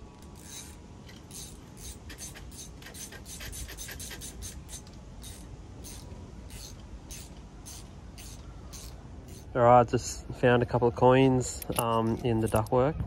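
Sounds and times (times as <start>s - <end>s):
steady low rumble: 0.0s - 3.4s, 4.2s - 13.0s
scraping and rubbing strokes: 0.0s - 9.6s.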